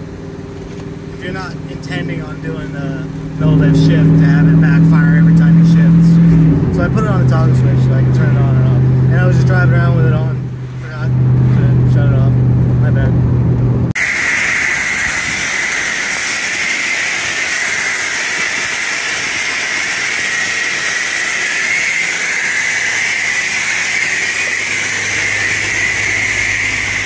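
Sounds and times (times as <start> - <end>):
low hum: 0.0 - 27.0
pressure washer spraying water: 14.0 - 27.0.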